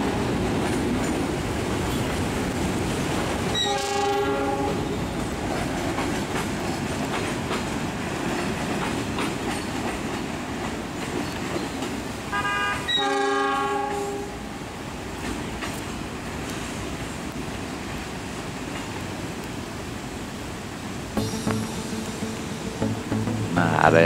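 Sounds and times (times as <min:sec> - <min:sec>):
train horn: 0:03.6 - 0:05.0, 0:12.3 - 0:14.4
wheels clicking over rail joints: 0:05.5 - 0:12.1.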